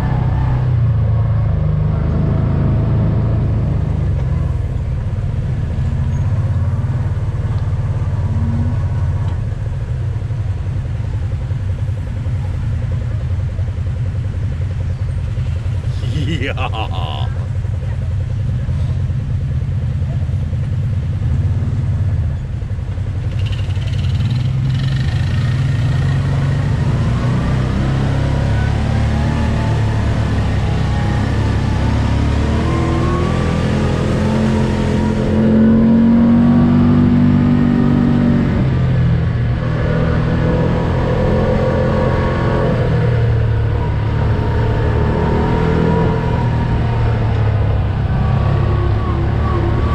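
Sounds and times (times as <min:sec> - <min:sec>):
off-road vehicle engine revving: 0:00.0 - 0:09.4, 0:23.2 - 0:49.9.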